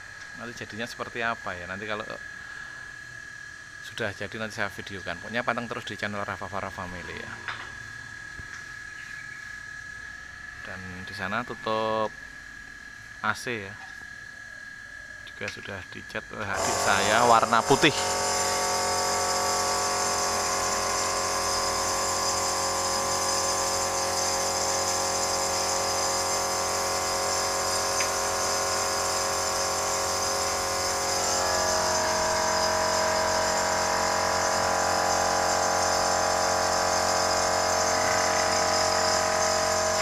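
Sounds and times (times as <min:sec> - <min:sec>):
air compressor running: 0:16.5 - 0:40.0.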